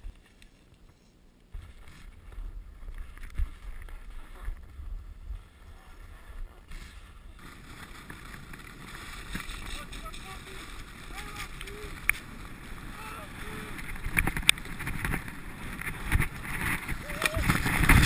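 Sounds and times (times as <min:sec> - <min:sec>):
wind rumbling: 0:01.5 - 0:18.0
skis hissing over snow: 0:06.7 - 0:14.0.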